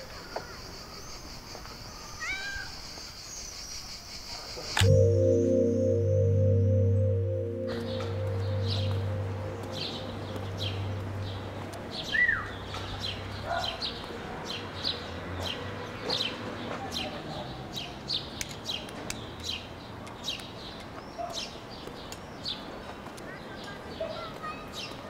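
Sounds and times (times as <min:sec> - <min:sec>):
low hum: 0:04.8 - 0:13.4.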